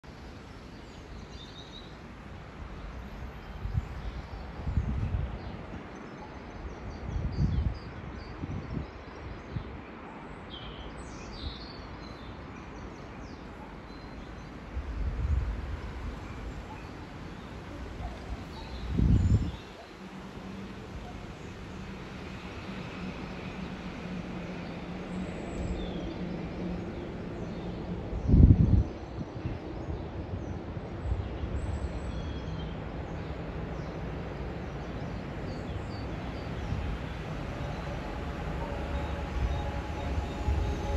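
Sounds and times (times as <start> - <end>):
steady outdoor hiss: 0.0 - 7.1, 9.0 - 40.9
wind rumbling on microphone: 2.4 - 9.9, 14.6 - 40.9
distant locomotive rumble: 30.2 - 40.9
birds chirping: 33.8 - 40.9.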